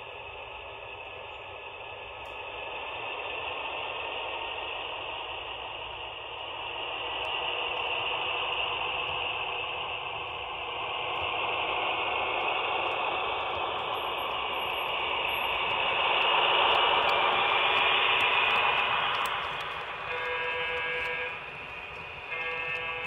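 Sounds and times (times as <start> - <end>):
model train rolling on track: 0.0 - 23.0
train horn: 20.0 - 23.0.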